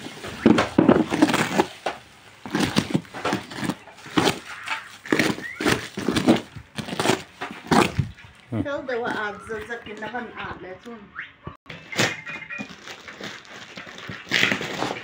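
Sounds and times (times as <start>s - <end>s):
knife cutting plastic wrap: 0.0s - 8.2s, 11.9s - 15.0s
plastic crinkling and ripping: 0.0s - 8.6s, 11.8s - 15.0s.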